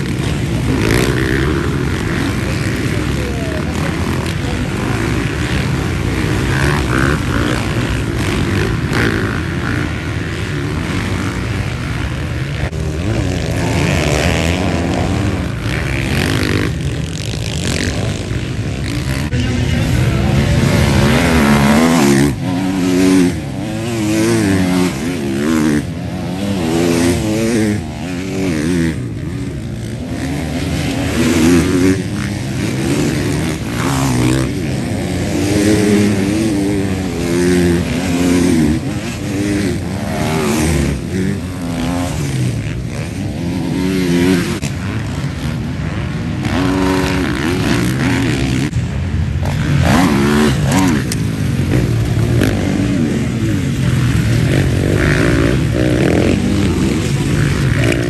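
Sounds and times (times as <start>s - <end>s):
motocross bikes revving: 0.0s - 58.0s.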